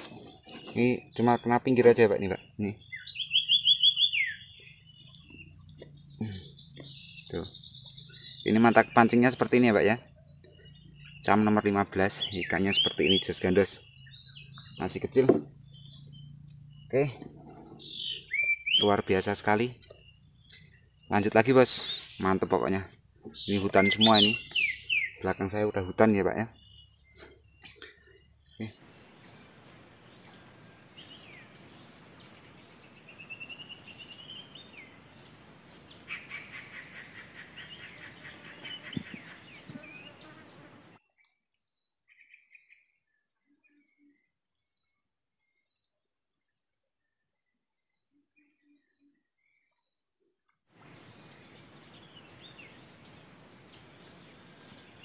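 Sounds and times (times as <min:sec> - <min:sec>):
bird chirps: 0:00.0 - 0:28.8, 0:30.1 - 0:35.0, 0:35.7 - 0:40.4
background hiss: 0:00.0 - 0:41.0, 0:50.8 - 0:55.0
insects shrilling: 0:00.0 - 0:41.0.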